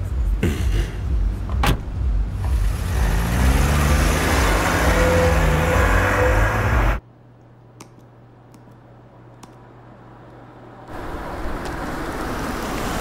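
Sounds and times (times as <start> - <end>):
car accelerating away: 2.4 - 7.0.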